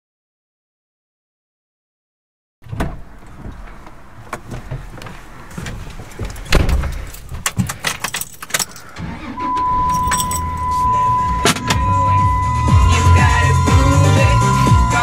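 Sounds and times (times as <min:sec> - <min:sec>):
car keys jangling: 0:06.1 - 0:11.8
steady high tone: 0:09.2 - 0:15.0.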